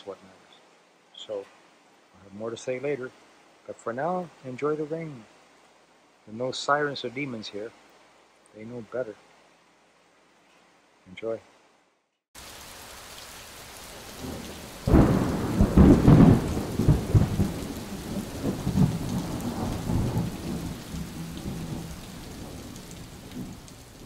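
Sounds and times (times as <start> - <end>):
steady rain falling: 0.0 - 24.0
thunder rumbling: 14.0 - 24.0.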